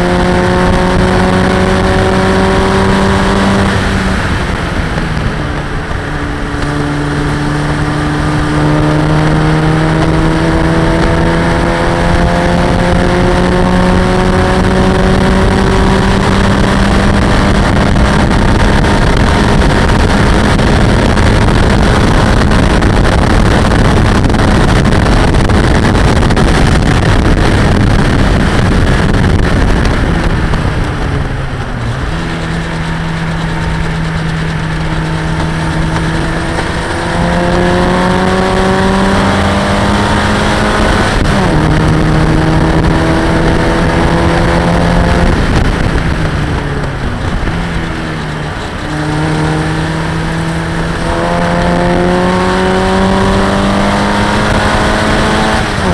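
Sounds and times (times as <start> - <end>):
race car engine at high revs: 0.0 - 55.9
wind rush on microphone: 0.0 - 55.9.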